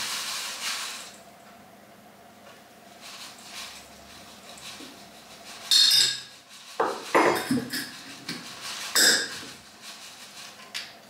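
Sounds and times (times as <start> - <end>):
utensils clinking against a bowl: 5.6 - 9.6.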